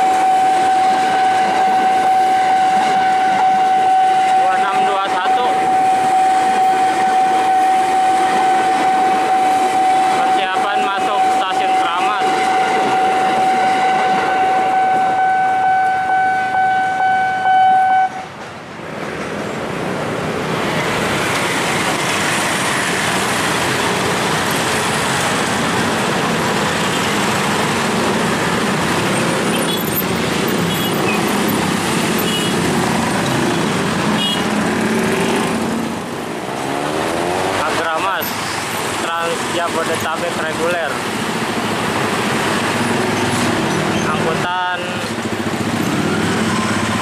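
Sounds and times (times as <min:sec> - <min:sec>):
train passing: 0:00.0 - 0:47.0
motorcycle and car engines: 0:19.5 - 0:39.4, 0:41.0 - 0:47.0.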